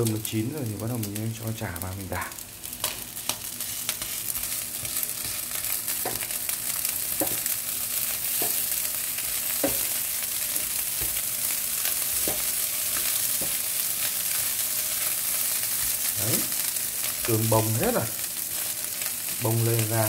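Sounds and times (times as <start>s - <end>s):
rice sizzling in a frying pan: 0.0s - 20.0s
spatula knocking against pan: 6.0s - 6.3s, 9.6s - 9.9s.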